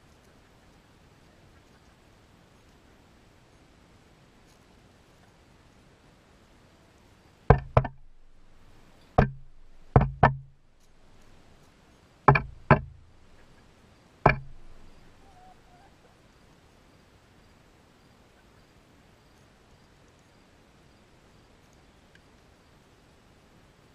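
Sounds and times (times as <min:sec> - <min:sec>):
chickens pecking on metal stand: 0:07.5 - 0:11.6, 0:12.3 - 0:13.4, 0:14.3 - 0:15.3.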